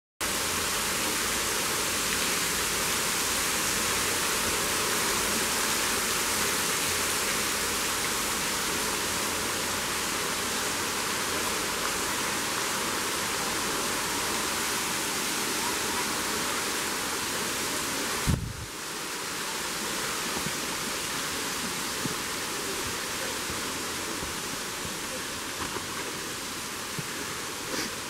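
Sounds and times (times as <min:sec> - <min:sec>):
waterfall rushing: 0:00.2 - 0:28.0.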